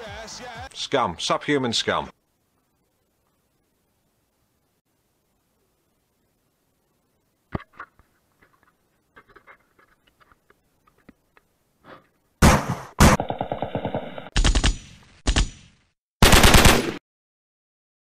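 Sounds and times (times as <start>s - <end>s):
machine-gun fire: 12.4s - 17.0s.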